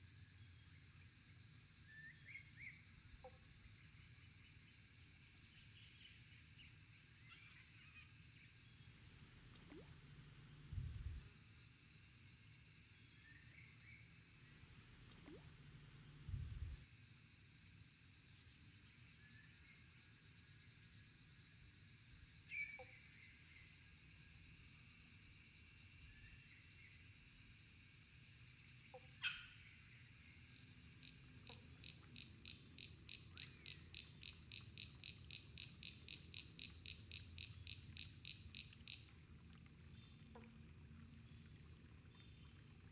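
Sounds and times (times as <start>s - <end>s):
frogs and insects calling: 0.1s - 9.8s, 16.8s - 39.1s.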